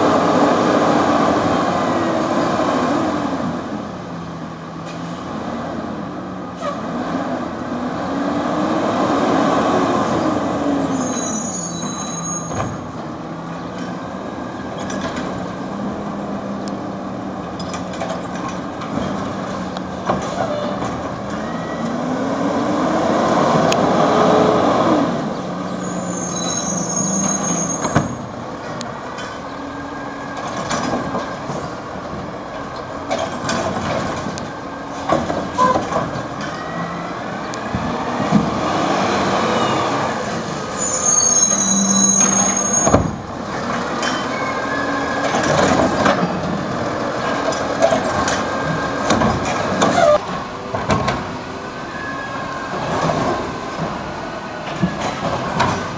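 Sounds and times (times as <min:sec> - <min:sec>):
brakes squealing: 0:10.8 - 0:16.2, 0:25.3 - 0:31.8, 0:32.6 - 0:46.4
diesel engine revving: 0:21.9 - 0:25.7.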